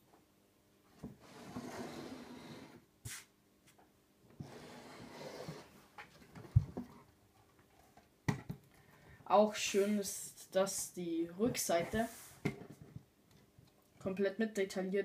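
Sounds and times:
plastic base scraping on shelf: 1.1s - 2.8s, 4.4s - 5.7s.

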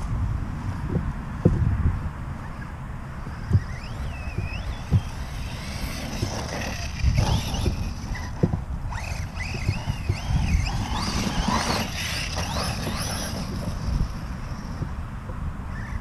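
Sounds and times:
wind buffeting microphone: 0.0s - 16.0s
electric motor whining: 2.5s - 14.9s.

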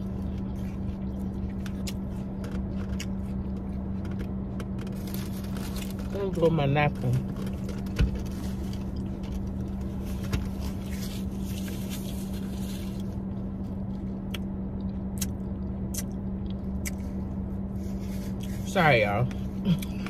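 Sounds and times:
eating noises: 0.0s - 4.8s
steady low hum: 0.0s - 20.0s.

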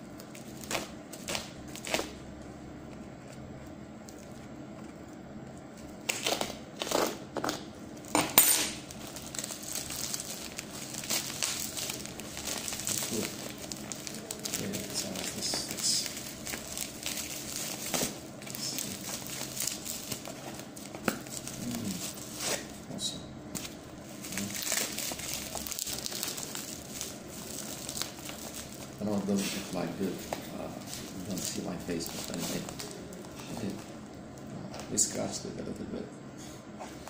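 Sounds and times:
plastic mailer crinkling: 8.8s - 22.7s, 23.5s - 34.2s.

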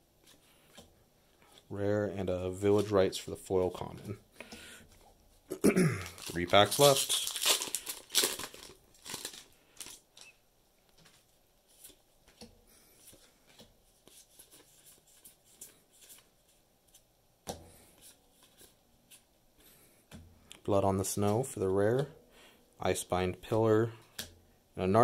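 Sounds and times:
foil wrapper crinkling: 6.0s - 10.4s.

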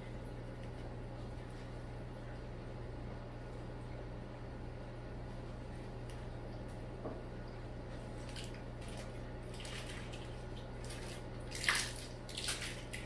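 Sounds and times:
aquarium low hum: 0.0s - 13.0s
water splashing and dripping: 8.2s - 13.0s.

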